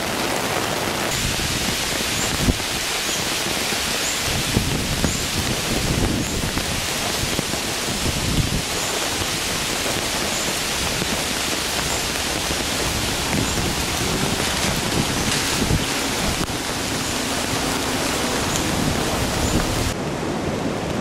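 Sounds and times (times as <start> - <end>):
heavy rain pouring: 0.0 - 21.0
low rumbles: 10.0 - 20.3.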